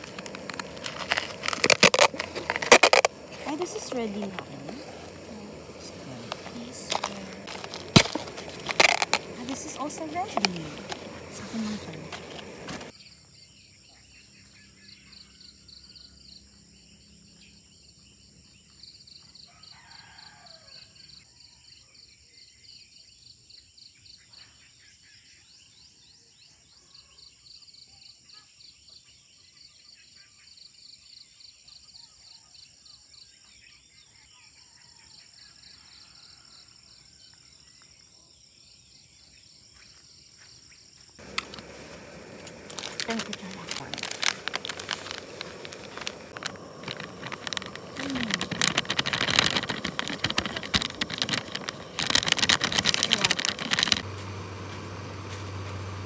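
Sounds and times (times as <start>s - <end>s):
insects chirping: 0.0s - 21.0s, 33.2s - 56.0s.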